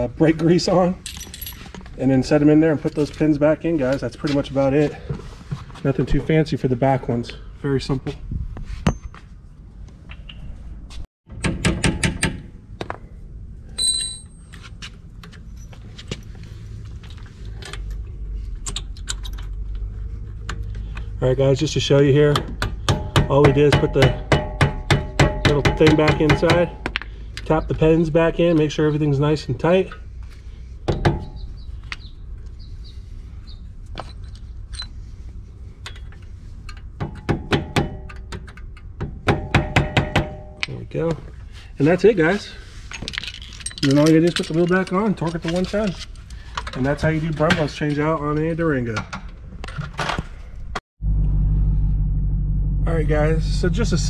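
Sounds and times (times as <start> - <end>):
high metallic ring: 13.8 - 14.6.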